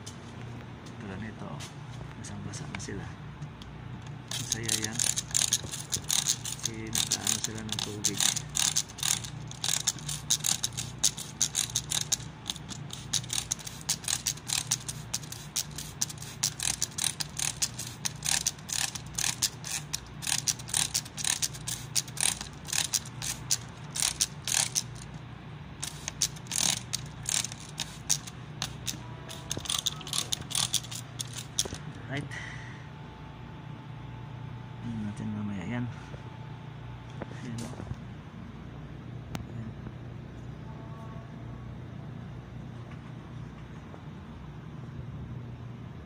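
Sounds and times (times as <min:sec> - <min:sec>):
spray bottle trigger clicking: 0:04.3 - 0:25.0, 0:25.8 - 0:31.8
spray hissing: 0:04.3 - 0:25.0, 0:25.8 - 0:31.8.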